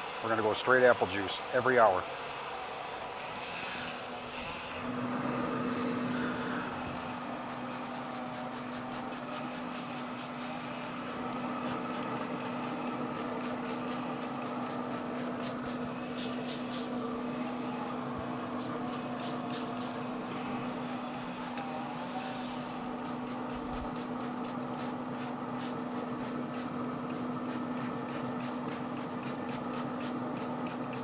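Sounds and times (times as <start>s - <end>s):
pellet grill humming: 2.5s - 31.0s.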